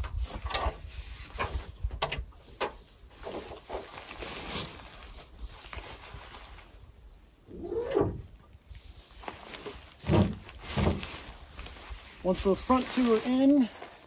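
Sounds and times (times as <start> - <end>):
tent fabric rustling: 2.4 - 8.0, 8.6 - 14.0.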